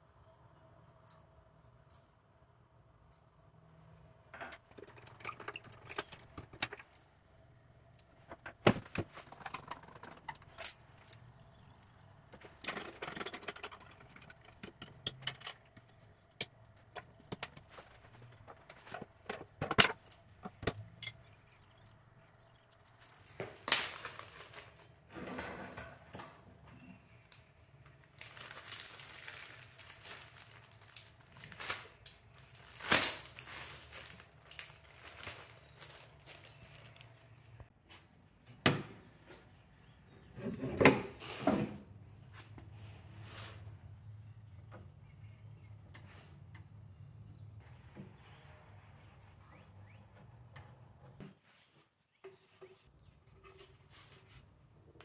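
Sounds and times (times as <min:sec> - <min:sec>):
metallic clinks of hardware: 0:10.4 - 0:11.3, 0:19.7 - 0:21.4
rustling: 0:28.1 - 0:38.0.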